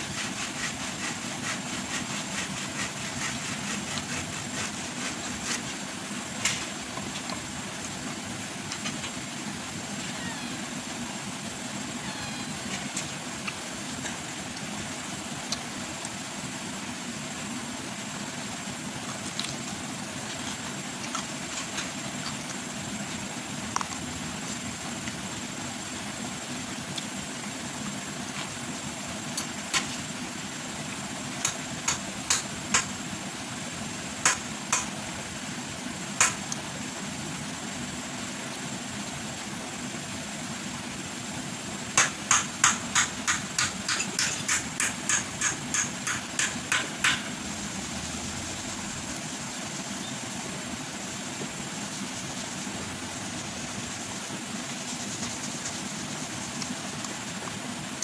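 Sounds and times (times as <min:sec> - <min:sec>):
steady background hum: 0:00.0 - 0:58.0.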